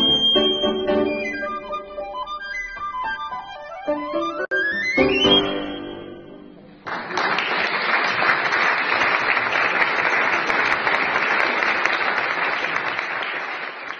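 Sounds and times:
audience applauding: 6.8s - 13.9s.

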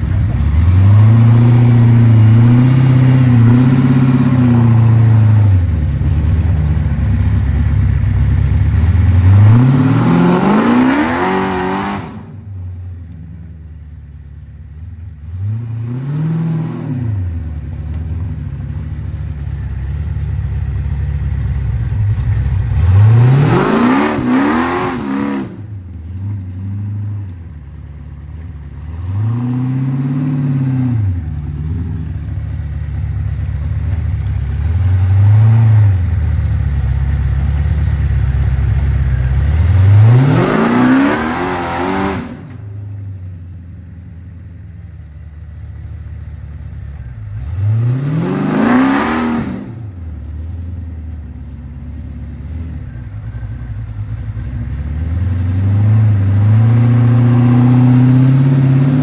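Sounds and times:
engine revving hard: 0.0s - 5.6s, 9.1s - 12.4s, 15.4s - 17.4s, 22.7s - 25.7s, 28.9s - 31.2s, 39.6s - 42.6s, 47.4s - 50.0s, 55.1s - 59.0s.

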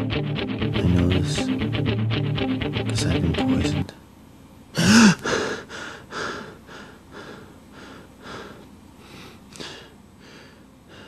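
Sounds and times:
person panting: 4.8s - 11.0s.

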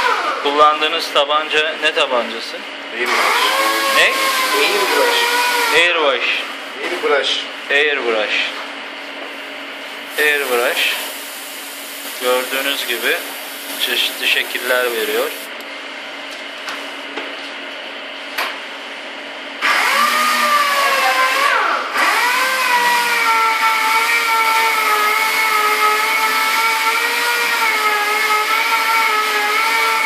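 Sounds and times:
small electric motor whining: 3.1s - 5.8s, 19.6s - 30.0s
airbrush hissing: 10.1s - 15.5s.

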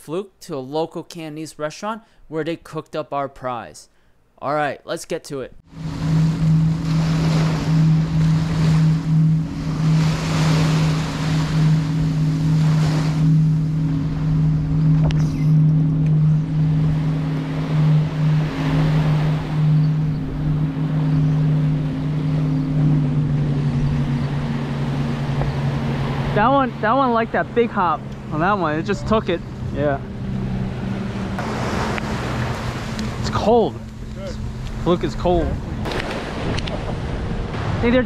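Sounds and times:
steady low hum: 5.6s - 36.0s
surf waves washing on beach: 5.7s - 14.0s, 30.7s - 38.0s.

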